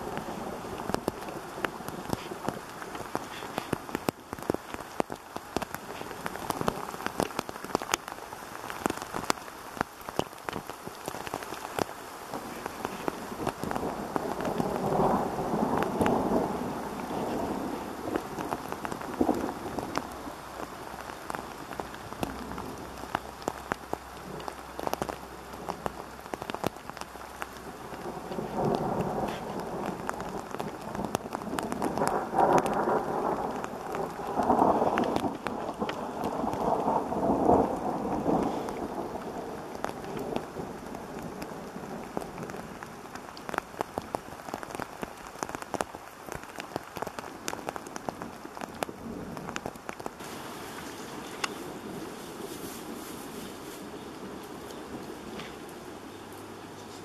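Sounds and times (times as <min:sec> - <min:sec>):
steady rain: 0:00.0 - 0:57.0
thunder rolling: 0:12.3 - 0:26.6, 0:27.6 - 0:42.8.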